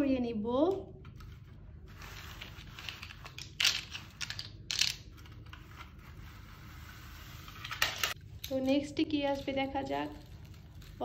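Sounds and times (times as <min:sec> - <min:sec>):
plastic letters clattering: 0:02.6 - 0:05.4.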